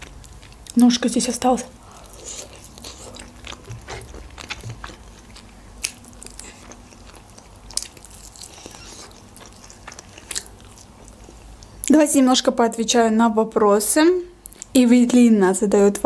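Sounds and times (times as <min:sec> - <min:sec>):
person chewing meat: 0:00.0 - 0:00.8, 0:01.8 - 0:11.9.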